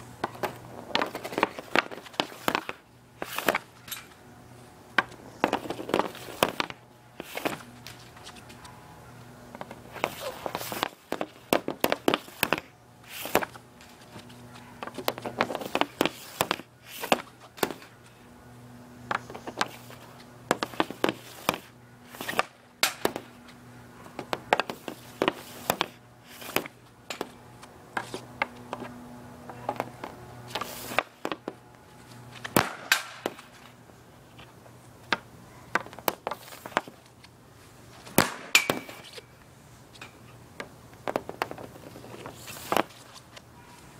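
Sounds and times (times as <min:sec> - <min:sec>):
hockey stick slapping pucks: 0:00.2 - 0:03.7, 0:05.0 - 0:08.4, 0:09.6 - 0:13.6, 0:14.8 - 0:17.9, 0:19.1 - 0:23.4, 0:24.2 - 0:28.9, 0:29.7 - 0:31.6, 0:32.4 - 0:33.7, 0:35.1 - 0:37.0, 0:38.1 - 0:39.2, 0:41.0 - 0:43.2.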